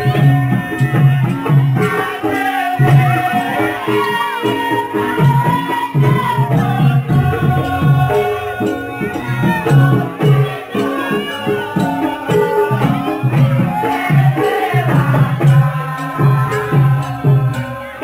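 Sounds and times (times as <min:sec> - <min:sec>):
hand drum beating: 0:00.0 - 0:18.0
gliding melody lines: 0:06.6 - 0:12.0.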